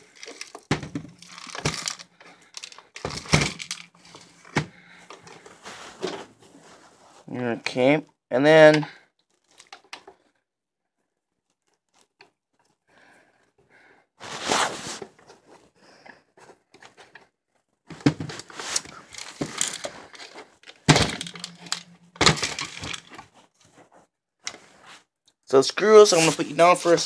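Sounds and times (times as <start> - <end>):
plastic parts rustling and scraping: 0.0 - 7.3, 9.2 - 10.4, 11.4 - 12.8, 14.2 - 25.0, 26.1 - 27.0.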